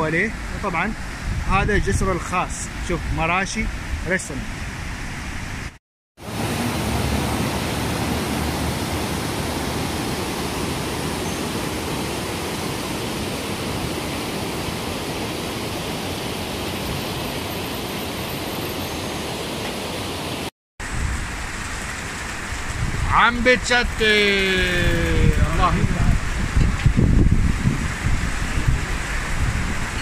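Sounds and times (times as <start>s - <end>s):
river water rushing over weir: 6.2s - 20.5s.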